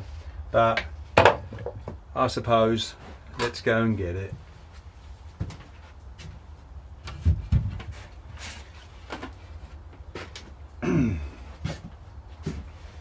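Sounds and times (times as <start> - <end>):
wooden plate knocks: 1.2 - 2.0.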